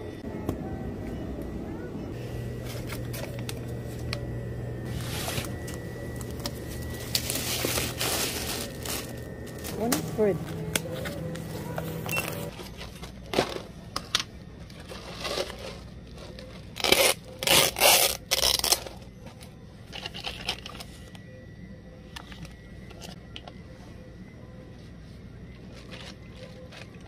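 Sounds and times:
plastic pouch crinkling: 4.9 - 11.0.

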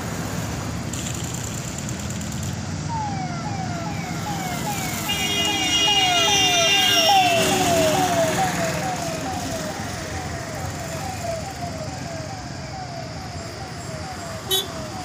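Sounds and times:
low traffic rumble: 0.0 - 15.0
siren whooping: 2.8 - 15.0
steady multi-note horn tone: 5.1 - 7.2.

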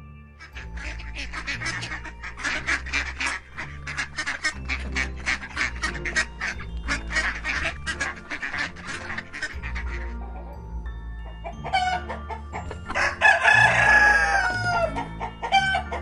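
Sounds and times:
soft background music: 0.0 - 16.0
duck quacking: 0.4 - 10.6.

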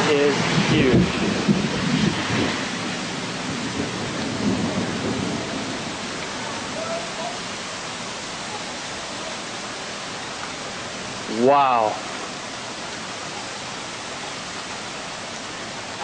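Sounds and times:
storm wind rushing: 0.0 - 8.1.

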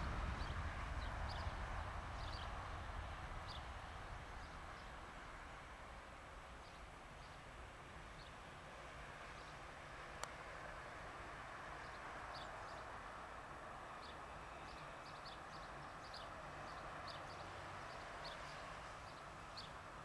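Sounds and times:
jet engine rumble: 0.0 - 8.8.

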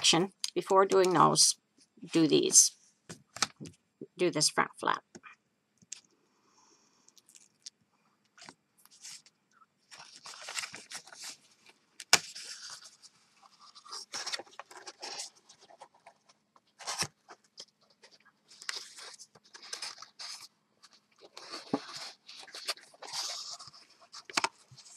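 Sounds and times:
cardstock rustling and crinkling: 8.4 - 9.3, 9.9 - 24.9.

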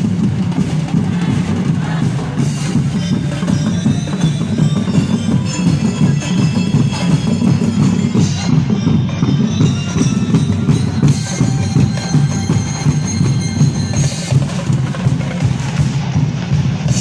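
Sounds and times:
barrel drums beaten with sticks: 0.0 - 17.0.

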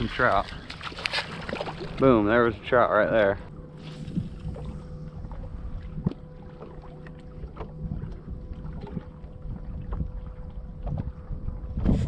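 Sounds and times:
waves slapping a boat hull: 0.0 - 12.0
wind rumble on microphone: 3.8 - 12.0.

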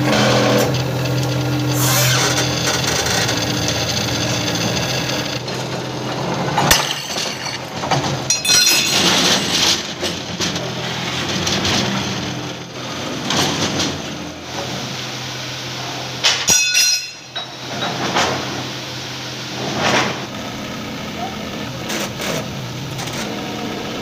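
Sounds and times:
scraping and shuffling of steel rail: 6.6 - 11.9, 16.4 - 18.5
sharp ringing metal clank: 8.3 - 9.2, 16.4 - 17.9.

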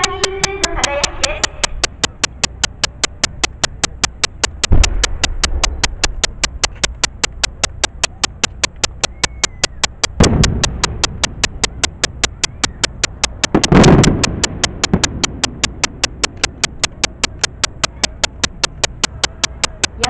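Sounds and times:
rapid steady ticking: 0.0 - 20.0
firework shells booming: 4.7 - 5.8, 10.2 - 11.2, 13.5 - 15.6.

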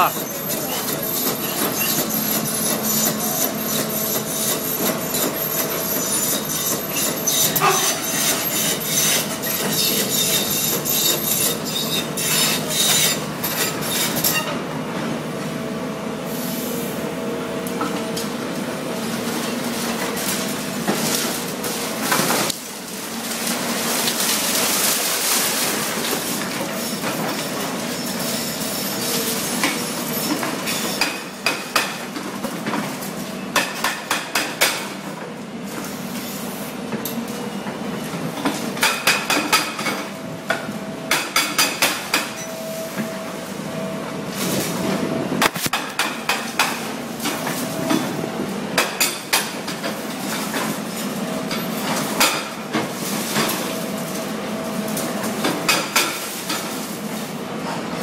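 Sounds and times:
excavator engines running: 0.0 - 58.0
hydraulic breaker hammering concrete: 30.9 - 32.1, 33.5 - 35.0, 38.8 - 40.0, 41.0 - 42.4, 45.4 - 46.9, 55.4 - 56.3.

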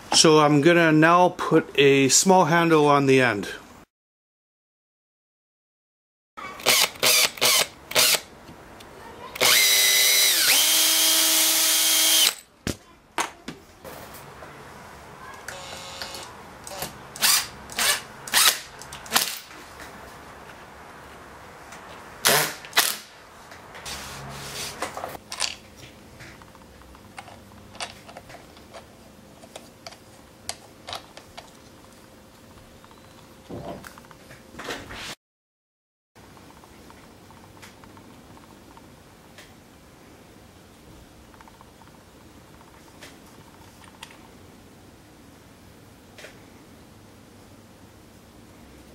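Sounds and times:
electric drill boring wood: 6.6 - 8.2, 9.4 - 12.4, 15.5 - 16.3.

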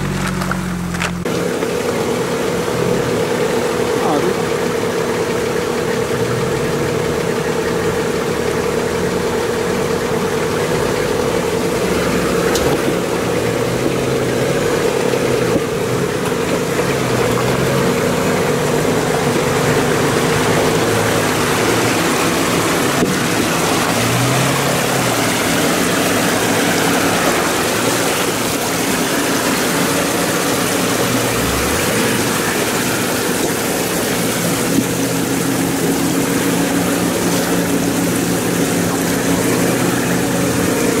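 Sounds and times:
off-road vehicle engine at low revs: 0.0 - 41.0
rushing stream: 0.0 - 41.0
tyre splashing through water: 10.6 - 41.0.

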